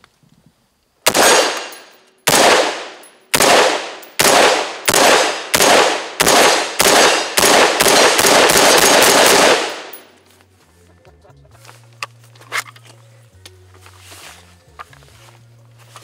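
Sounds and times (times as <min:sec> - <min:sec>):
rifle gunshots: 0:01.1 - 0:10.1.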